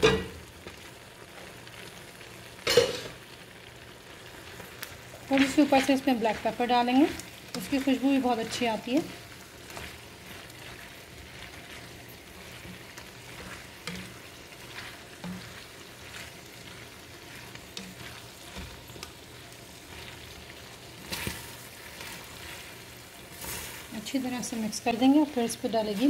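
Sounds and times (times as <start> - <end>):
spoon knocking and scraping a pan: 0.0 - 0.4, 2.7 - 3.2, 9.7 - 19.2, 21.0 - 22.6
pasta sizzling in a skillet: 0.0 - 26.0.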